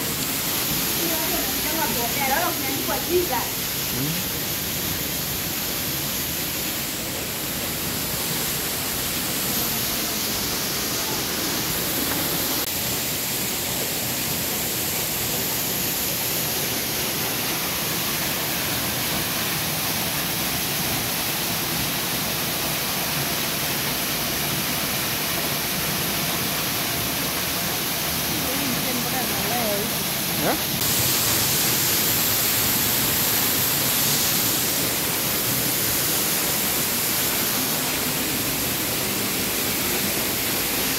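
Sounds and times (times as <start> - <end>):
waterfall rushing: 0.0 - 40.9.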